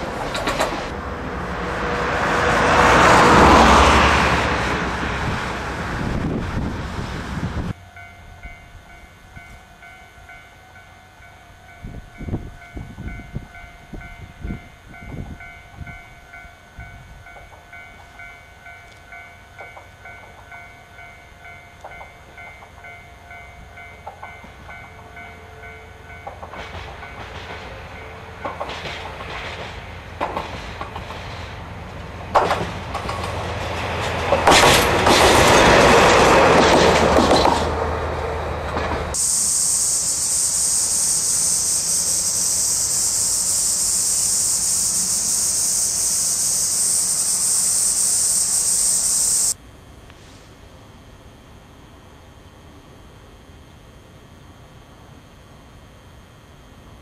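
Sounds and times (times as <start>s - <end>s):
wheels clacking over rail joints: 0.0s - 1.0s, 26.2s - 39.2s
diesel locomotive passing: 0.0s - 51.2s
level-crossing warning bell: 7.7s - 28.8s, 39.2s - 49.6s.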